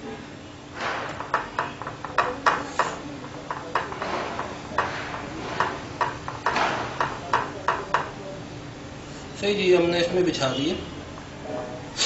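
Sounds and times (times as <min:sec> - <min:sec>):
fingers tapping on glass dish: 0:01.3 - 0:04.9, 0:05.6 - 0:08.1.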